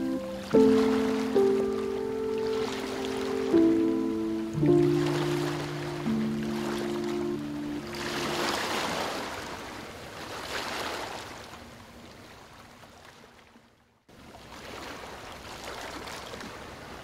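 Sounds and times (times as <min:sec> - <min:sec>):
ocean waves washing in: 0:00.0 - 0:11.5.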